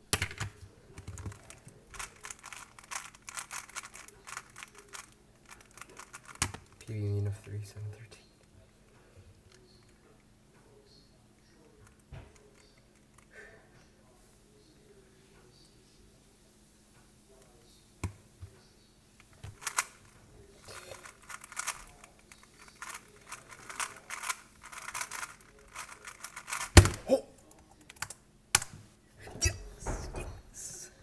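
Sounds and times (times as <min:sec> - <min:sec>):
plastic cube clicking and clacking: 0:00.2 - 0:06.8, 0:19.3 - 0:20.0, 0:20.7 - 0:27.0.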